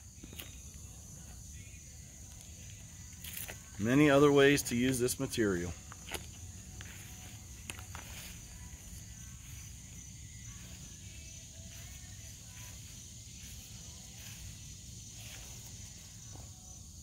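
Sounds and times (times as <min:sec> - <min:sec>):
insect chirring: 0:00.0 - 0:17.0
footsteps crunching on gravel: 0:03.2 - 0:03.9, 0:05.6 - 0:16.6.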